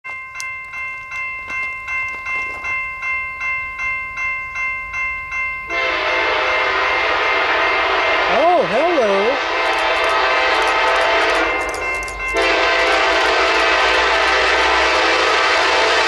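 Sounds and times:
crossing bell ringing: 0:00.0 - 0:16.0
train horn blast: 0:05.7 - 0:11.6, 0:12.3 - 0:16.0.

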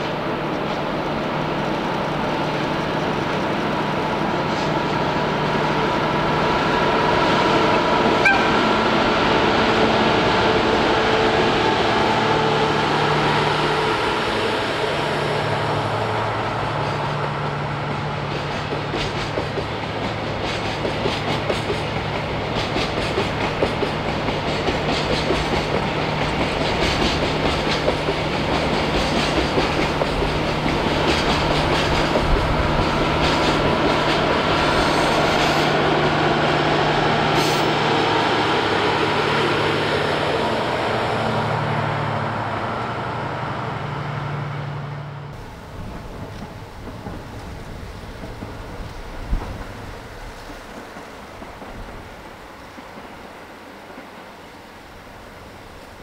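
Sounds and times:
diesel train engine humming: 0:00.0 - 0:56.0
train wheels clicking over rail joints: 0:16.7 - 0:36.0, 0:45.3 - 0:54.3.

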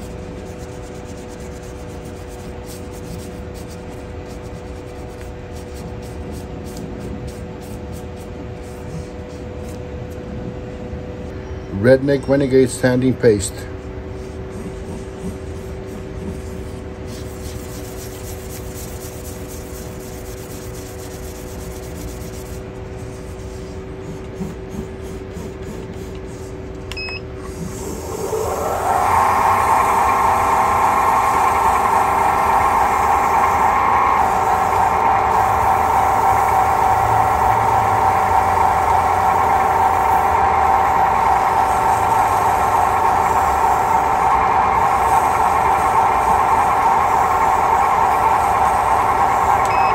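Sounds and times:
wood lathe motor whine: 0:27.5 - 0:49.9.

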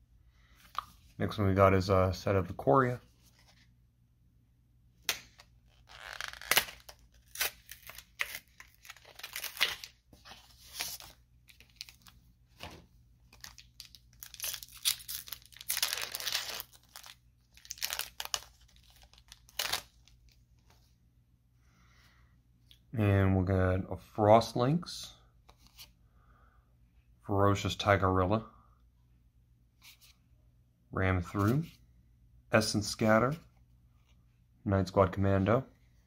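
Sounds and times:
foil wrapper crinkling and tearing: 0:05.7 - 0:10.0, 0:13.4 - 0:20.2.

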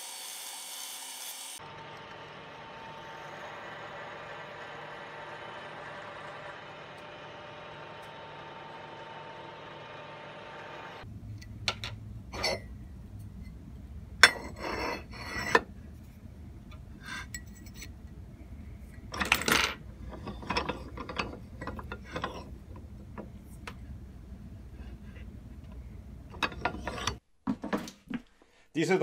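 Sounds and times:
milling machine running: 0:01.0 - 0:11.0
metal parts clinking: 0:19.0 - 0:22.5.

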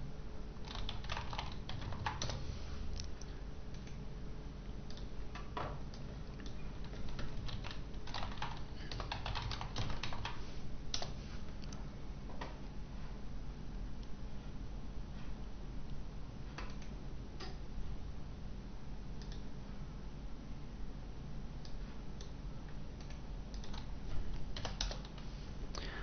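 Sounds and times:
computer keyboard typing: 0:00.6 - 0:02.5, 0:04.9 - 0:11.8, 0:19.2 - 0:19.5, 0:23.0 - 0:25.3.

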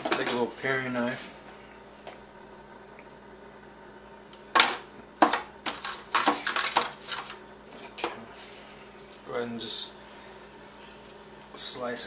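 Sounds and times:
foil pan crinkling and clattering: 0:05.2 - 0:07.9.

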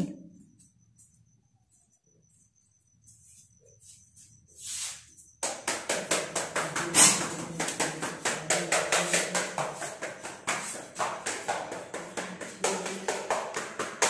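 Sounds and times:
basket beaten with sharp taps: 0:05.4 - 0:14.0.

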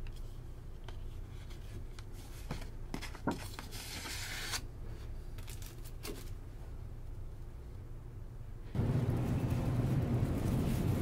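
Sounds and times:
steady low hum: 0:04.6 - 0:11.0.

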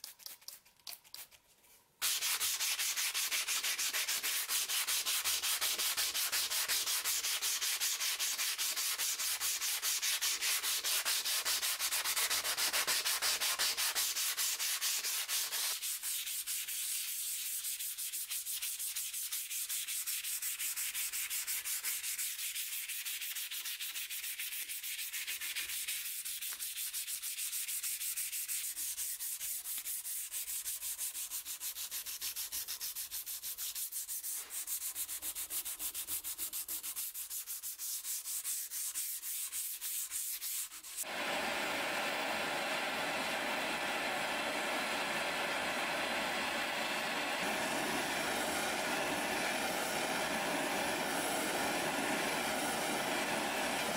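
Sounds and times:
sanding metal blade by hand: 0:02.0 - 0:41.1.

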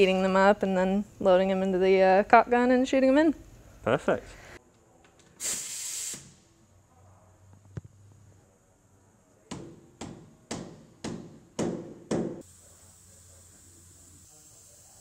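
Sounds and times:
knocks: 0:09.5 - 0:12.4.

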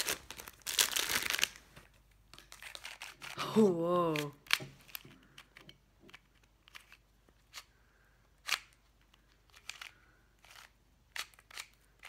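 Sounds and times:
plastic puzzle clicks: 0:04.1 - 0:07.7, 0:08.4 - 0:12.0.

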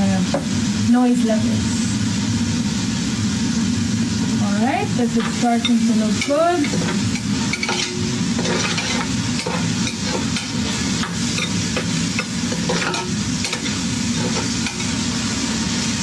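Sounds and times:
onions sizzling in a pot: 0:00.0 - 0:16.0
spoon scraping and knocking a pot: 0:05.2 - 0:15.0.

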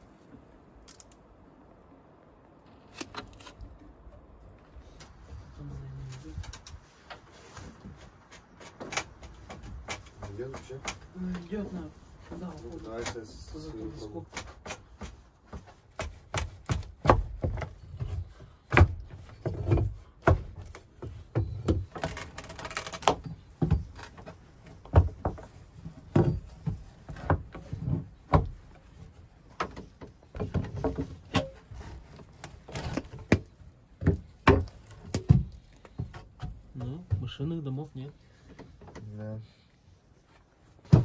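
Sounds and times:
knocks and dull thuds: 0:14.5 - 0:21.9, 0:40.8 - 0:41.0.

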